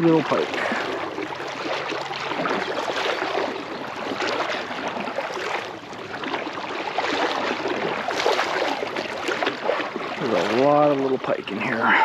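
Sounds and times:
river water splashing: 0.0 - 12.0.

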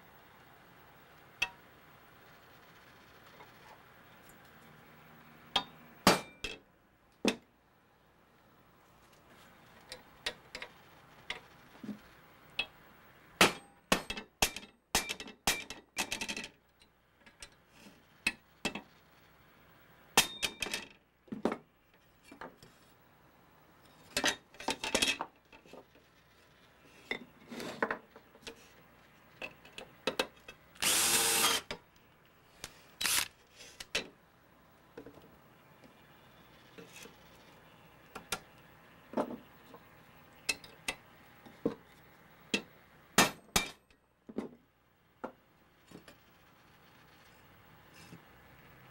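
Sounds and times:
screwdrivers scraping and clicking: 32.6 - 34.0.

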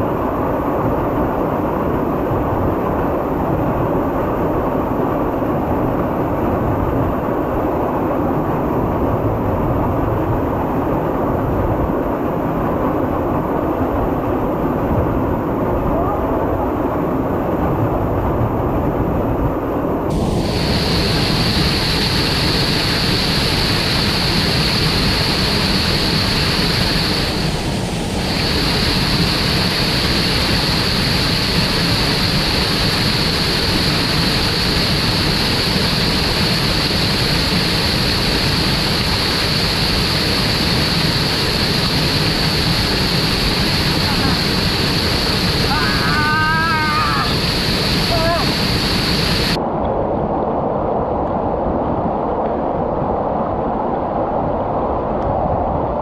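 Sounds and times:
waterfall rushing: 20.1 - 49.6.

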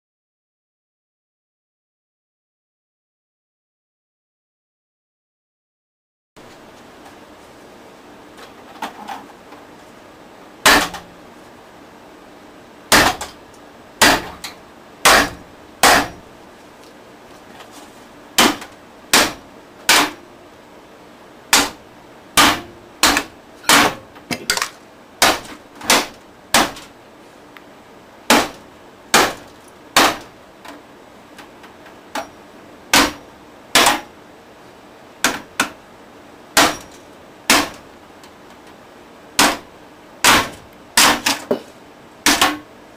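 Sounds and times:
hammer striking stereo: 10.6 - 11.1, 12.9 - 13.4, 14.0 - 16.3, 18.4 - 20.3, 21.5 - 21.8, 22.4 - 26.9, 28.3 - 30.3, 32.1 - 34.1, 35.2 - 35.8, 36.6 - 37.8, 39.4 - 41.6, 42.2 - 42.7.

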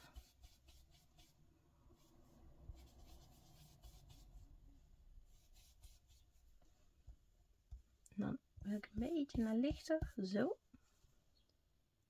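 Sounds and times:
foam tool swishing on cardstock: 0.0 - 4.4.

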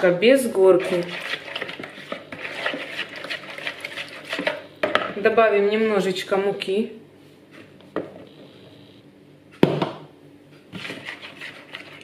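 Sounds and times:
spoon stirring dough in a bowl: 0.5 - 4.7, 10.6 - 12.0.

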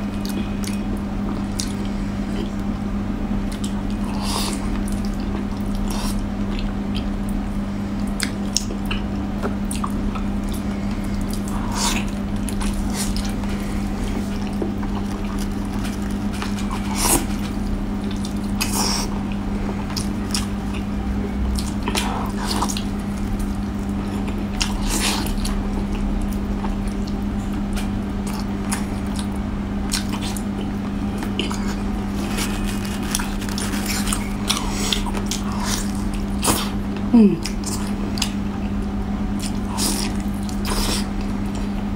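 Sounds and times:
steady low hum: 0.0 - 41.9
wet chewing and sucking: 21.6 - 36.8, 39.4 - 41.7.

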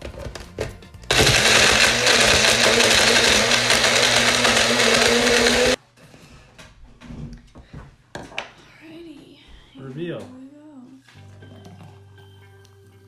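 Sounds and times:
blender running: 1.1 - 5.8.

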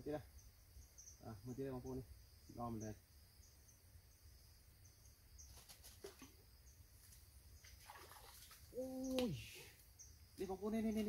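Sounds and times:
insect calling in high pulses: 0.0 - 11.0
faint chirps and clicks: 4.8 - 11.0.

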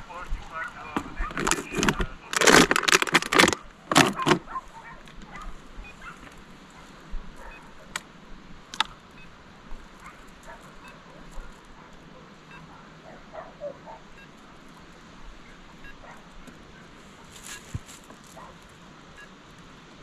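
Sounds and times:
sharp clicks: 0.9 - 4.4, 8.7 - 9.0.

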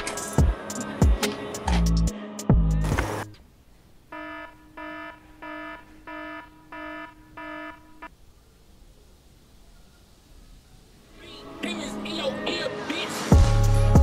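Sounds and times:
music track with drum hits: 0.0 - 3.2, 13.3 - 14.0
phone alarm beeps: 4.1 - 8.1.

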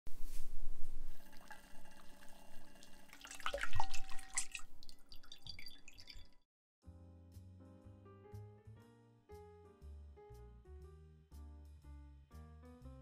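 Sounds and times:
liquid dripping: 1.1 - 6.4
sauce pouring and splashing: 1.1 - 6.4.

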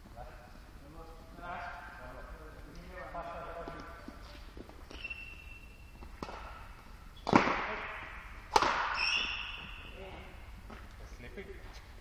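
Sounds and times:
rackets hitting shuttlecock: 4.8 - 10.0.

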